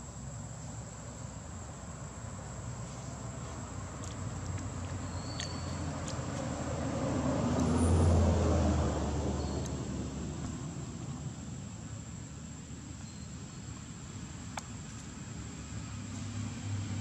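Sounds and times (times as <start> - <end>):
vehicle passing by rumbling: 2.6 - 12.2, 15.2 - 17.0.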